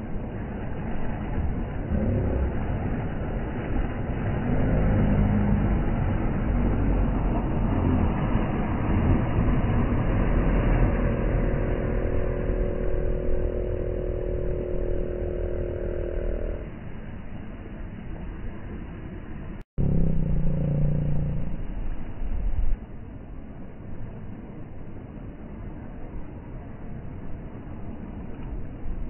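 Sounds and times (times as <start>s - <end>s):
steady pitched hum: 0.0s - 22.8s
outboard boat motor running: 0.8s - 16.7s.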